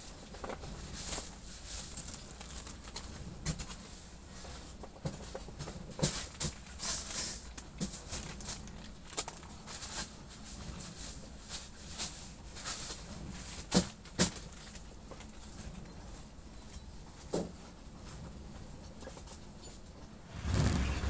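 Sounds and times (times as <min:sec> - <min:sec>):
plastic sheeting rustling and crinkling: 0:00.9 - 0:03.1.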